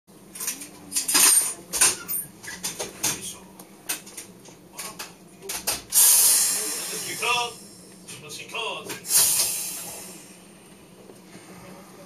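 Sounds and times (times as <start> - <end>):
faint steady hum: 0.1 - 12.0.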